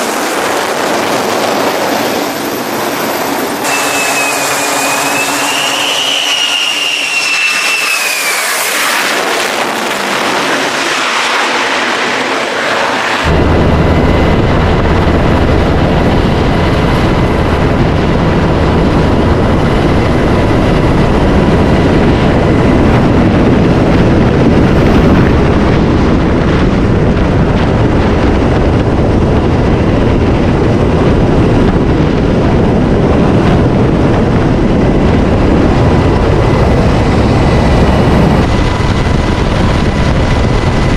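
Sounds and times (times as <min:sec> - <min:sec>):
jet fighter flying past: 0:00.0 - 0:27.1
helicopter turbine and rotor noise: 0:00.0 - 0:40.9.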